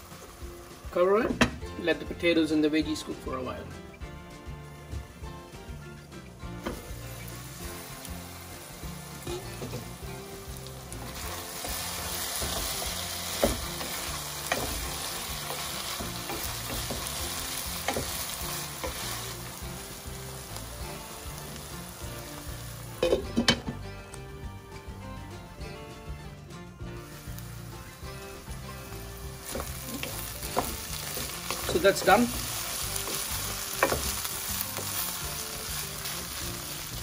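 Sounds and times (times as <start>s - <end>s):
meat sizzling in a pot: 0.0s - 37.0s
wooden spatula scraping: 5.9s - 23.1s, 28.3s - 37.0s.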